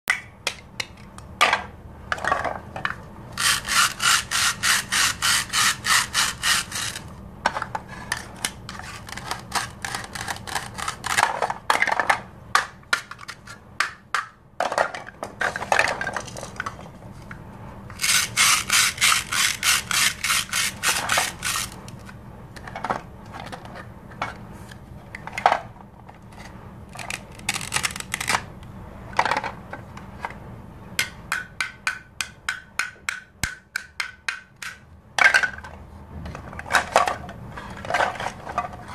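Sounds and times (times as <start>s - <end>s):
plastic toy knife sawing: 3.3s - 7.1s, 8.7s - 11.4s, 18.0s - 21.8s
plastic pieces clicking and scraping: 3.4s - 13.6s, 18.0s - 23.8s, 26.3s - 28.5s.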